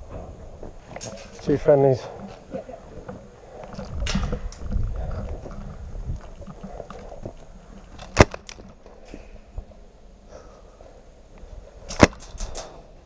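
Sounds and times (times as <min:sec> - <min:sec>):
camera handling rumble: 0:03.5 - 0:09.1
sharp crack: 0:08.0 - 0:09.3, 0:11.9 - 0:12.9.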